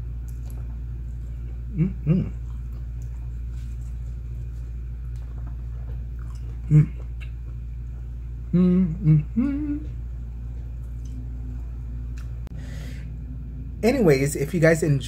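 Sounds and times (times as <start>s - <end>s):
low background hum: 0.0s - 15.0s
man humming while chewing: 1.2s - 3.2s, 6.2s - 7.4s, 8.4s - 10.3s.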